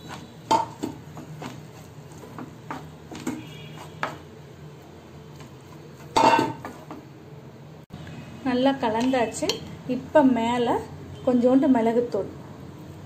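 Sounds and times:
spatula tapping and scraping pan: 0:00.0 - 0:04.3, 0:05.3 - 0:07.1
steel bowl clanking on pan: 0:00.5 - 0:01.0, 0:06.1 - 0:06.8.

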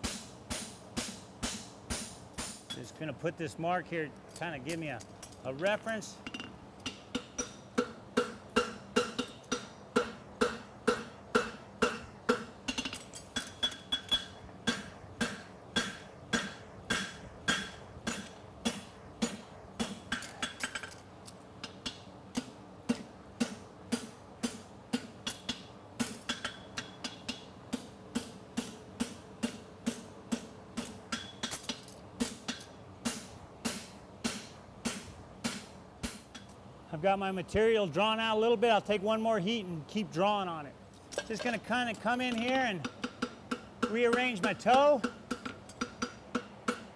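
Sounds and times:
hammer striking on anvil: 0:06.2 - 0:20.6, 0:28.2 - 0:36.5, 0:42.3 - 0:46.9.

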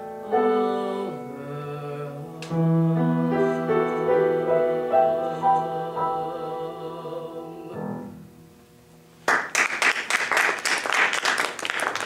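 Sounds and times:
audience applause: 0:09.3 - 0:12.0.

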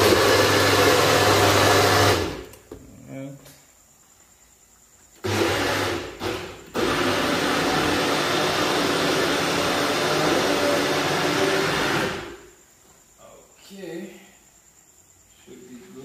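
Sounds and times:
blender running: 0:00.0 - 0:02.5, 0:05.2 - 0:12.4.

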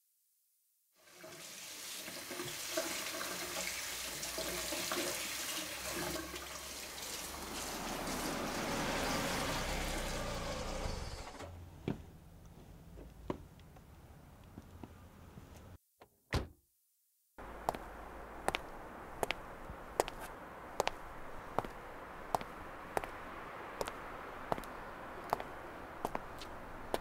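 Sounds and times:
tap water splashing into sink: 0:01.2 - 0:08.4.

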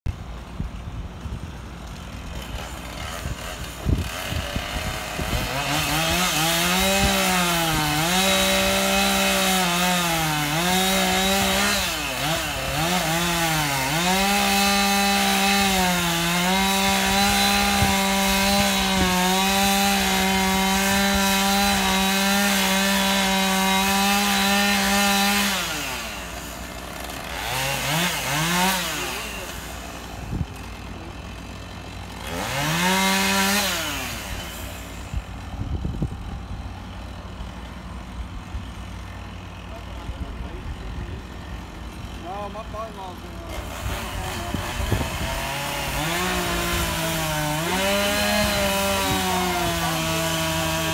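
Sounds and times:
chainsaw cutting wood: 0:00.1 - 0:50.9.

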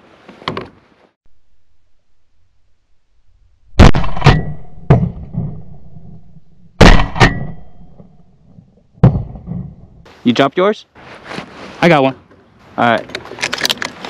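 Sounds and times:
shotgun blasts with echo: 0:03.8 - 0:06.1, 0:06.8 - 0:08.2, 0:09.0 - 0:09.8.

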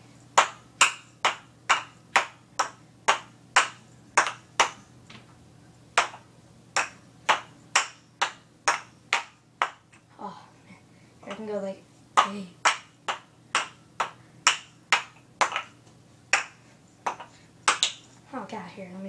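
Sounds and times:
wooden ball clacking into cups: 0:00.4 - 0:05.3, 0:06.0 - 0:10.0, 0:12.2 - 0:18.1.

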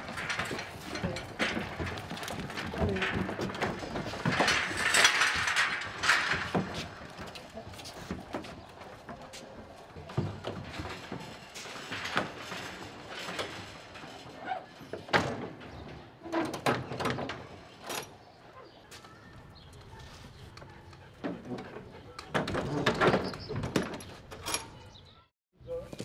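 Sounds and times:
metal trailer gates clanking: 0:00.0 - 0:07.7, 0:22.2 - 0:25.2.

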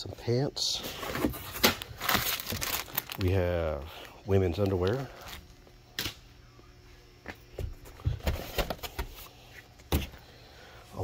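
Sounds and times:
knocks and thumps of goods handled: 0:07.3 - 0:10.2.

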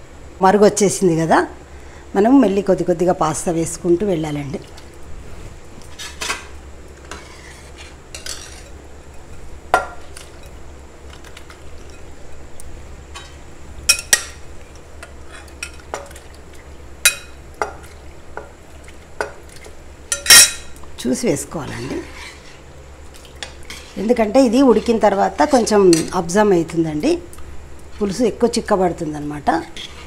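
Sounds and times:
low steady hum: 0:00.0 - 0:30.0
spoon clinking on pan and bowl: 0:17.0 - 0:17.9, 0:20.1 - 0:20.7.

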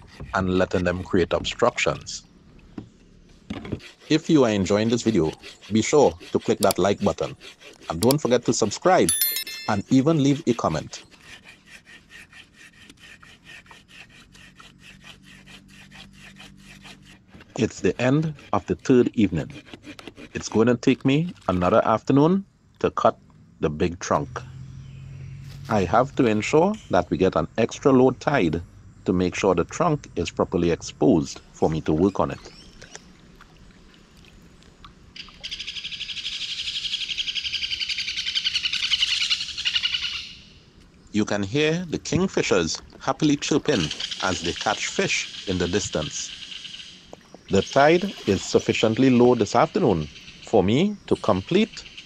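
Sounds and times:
handsaw cutting log: 0:00.0 - 0:02.0, 0:03.5 - 0:09.1, 0:09.9 - 0:20.9.

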